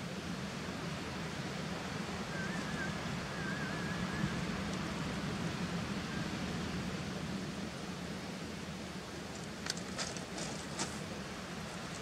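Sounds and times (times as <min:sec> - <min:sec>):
wind: 0:00.0 - 0:12.0
faint wavering whistle: 0:02.2 - 0:04.4.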